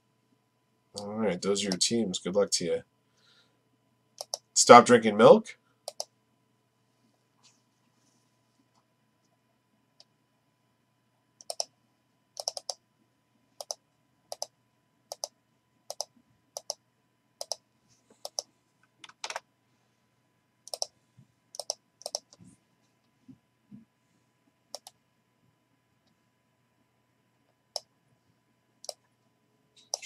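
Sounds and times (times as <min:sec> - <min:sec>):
sharp computer clicks: 0:04.2 - 0:04.5, 0:05.9 - 0:06.1, 0:11.4 - 0:11.7, 0:12.4 - 0:12.8, 0:13.6 - 0:16.8, 0:17.4 - 0:17.6, 0:18.2 - 0:19.4, 0:20.7 - 0:20.9, 0:21.5 - 0:22.4, 0:24.7 - 0:25.0, 0:27.7 - 0:27.9, 0:28.8 - 0:29.0, 0:29.8 - 0:30.0.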